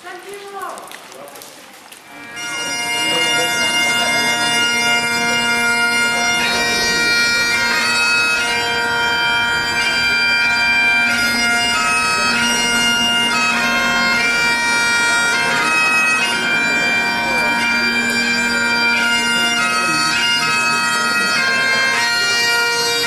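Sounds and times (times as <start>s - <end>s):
bagpipes playing a tune: 2.0s - 23.0s.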